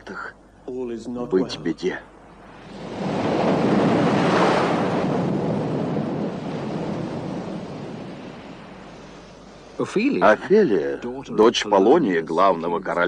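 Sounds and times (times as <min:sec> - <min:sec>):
wave crashing: 0:02.4 - 0:10.4.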